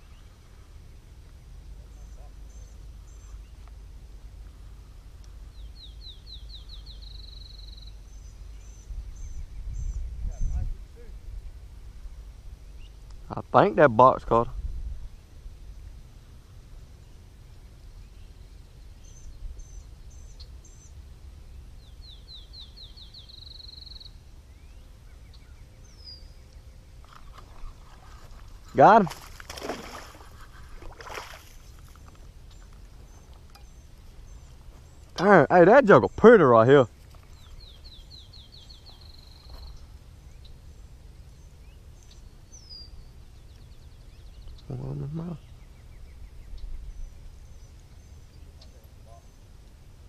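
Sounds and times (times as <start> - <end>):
steady low rumble: 0.0 - 13.6
songbirds calling and trilling: 0.0 - 14.4, 15.0 - 50.0
songbird whistling and trilling: 21.8 - 27.8.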